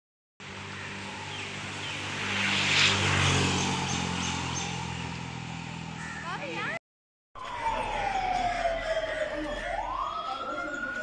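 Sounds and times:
vehicle engine passing: 0:00.4 - 0:06.8.

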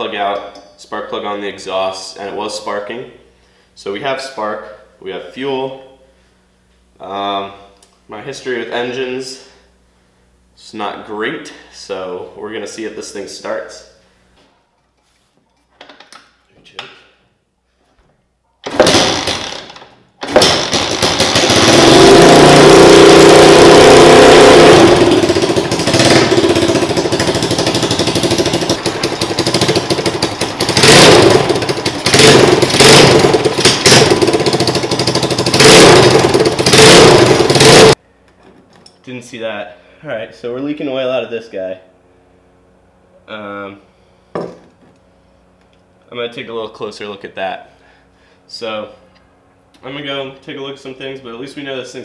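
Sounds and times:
kart engine starting: 0:18.6 - 0:38.0
kart engine running loudly: 0:20.2 - 0:38.0
engine throttle blips: 0:20.4 - 0:38.0.

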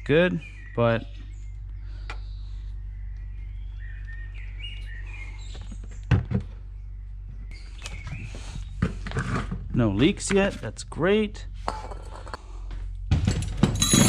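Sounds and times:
birds chirping: 0:00.0 - 0:11.6
steady low hum: 0:00.0 - 0:14.0
sharp knocks: 0:13.1 - 0:14.0.

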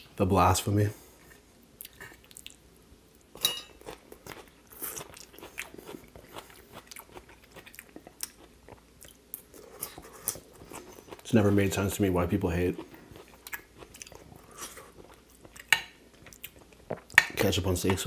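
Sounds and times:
chewing and mouth sounds: 0:01.8 - 0:02.6, 0:03.2 - 0:18.0
metal fork clinking on plate: 0:03.4 - 0:03.8.

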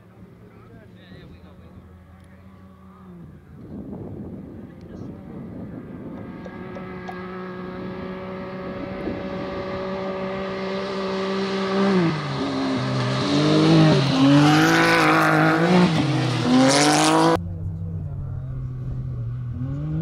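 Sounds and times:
buggy engines running hard: 0:00.0 - 0:20.0.

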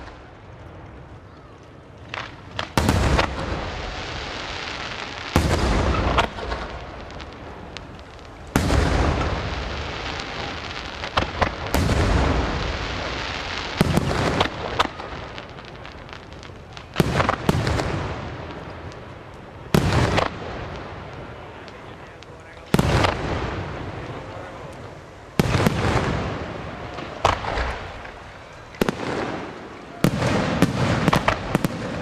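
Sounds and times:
firework shells bursting: 0:22.7 - 0:32.0.

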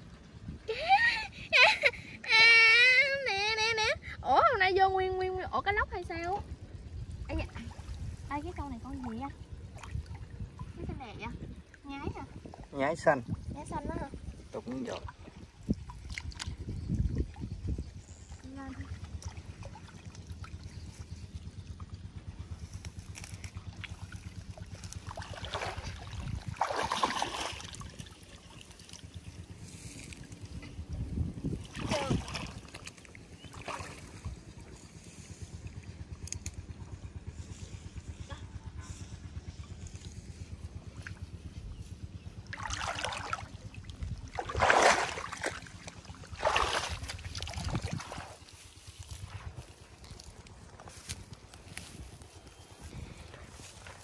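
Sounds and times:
low uneven rumble: 0:00.0 - 0:54.0
water splashing and sloshing: 0:05.6 - 0:54.0
water splashing and pouring: 0:25.0 - 0:29.0, 0:42.5 - 0:48.4.

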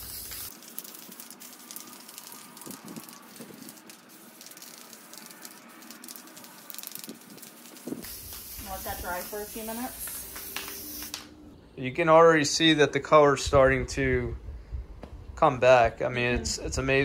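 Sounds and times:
aerosol spray hissing: 0:00.0 - 0:02.0, 0:03.0 - 0:11.2.

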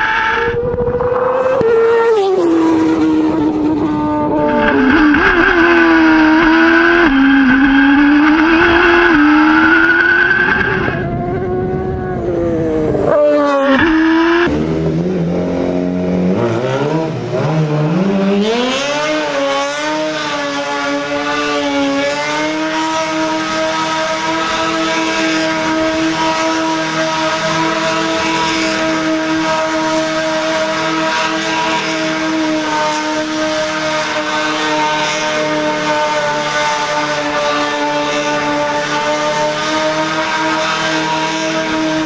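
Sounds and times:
pickup truck engine revving: 0:00.0 - 0:00.6, 0:04.4 - 0:11.1, 0:13.5 - 0:14.8
tyre squeal: 0:00.0 - 0:00.6, 0:04.4 - 0:11.1, 0:13.5 - 0:14.5
racing car engine high revs: 0:00.0 - 0:11.1, 0:12.9 - 0:42.0.

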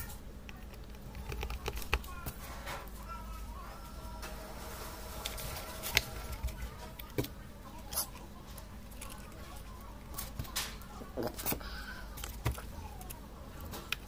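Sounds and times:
plastic parts clicking and tapping: 0:00.0 - 0:02.9, 0:11.4 - 0:14.0.

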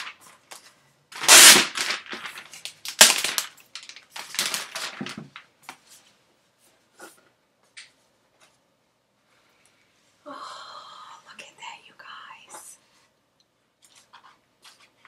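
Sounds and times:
plastic wrap crinkling: 0:00.0 - 0:05.8.

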